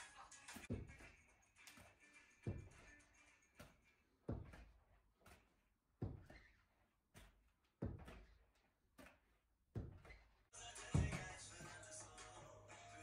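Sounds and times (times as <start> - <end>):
dull thumps on a floor: 10.9 - 11.8.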